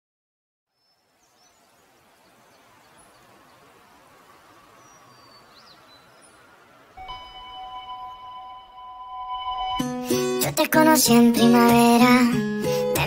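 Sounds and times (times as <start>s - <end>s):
steady hiss: 0.8s - 8.9s
faint high chirps: 4.7s - 10.4s
short pitch glides: 7.0s - 10.4s.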